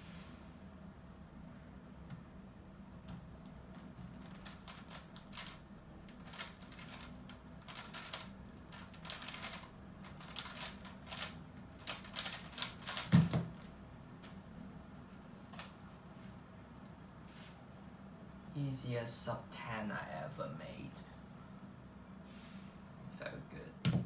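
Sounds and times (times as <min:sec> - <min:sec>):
puzzle cube clicking: 0:04.2 - 0:13.1.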